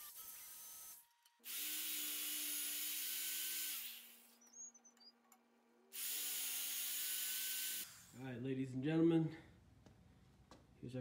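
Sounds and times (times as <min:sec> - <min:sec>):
electric drill whining through steel: 0:00.0 - 0:04.6, 0:05.9 - 0:08.2.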